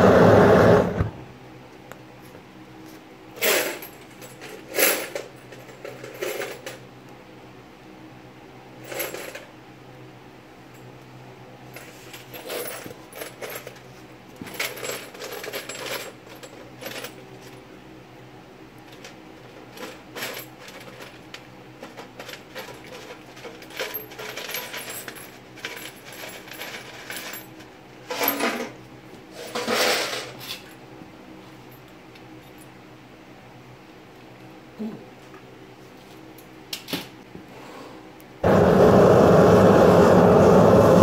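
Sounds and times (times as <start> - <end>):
furnace burner humming: 0.0 - 41.0
scrap metal clinking: 21.8 - 30.7.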